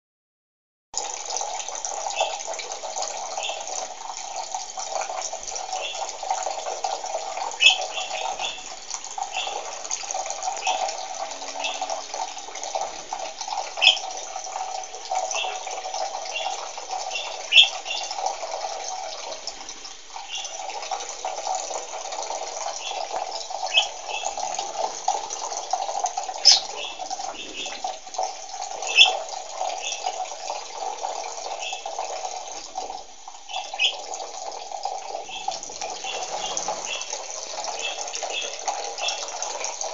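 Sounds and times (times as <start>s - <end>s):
water running from sink tap: 1.0s - 39.9s
budgerigar chirping: 7.6s - 8.6s, 13.8s - 14.1s, 17.2s - 18.1s, 23.7s - 24.3s, 26.4s - 27.8s, 28.9s - 29.2s, 33.5s - 34.0s.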